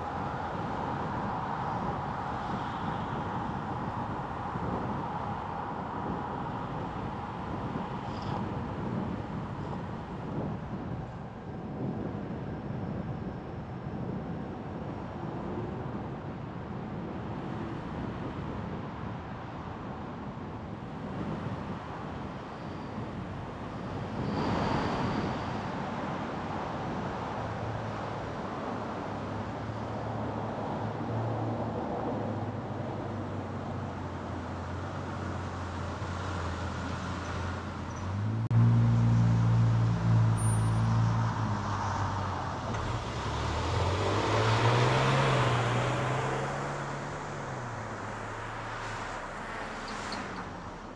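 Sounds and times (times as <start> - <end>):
passing traffic: 0.0 - 50.9
road and tyre noise: 0.0 - 50.9
car engine hum: 29.2 - 50.9
engine accelerating: 38.0 - 50.9.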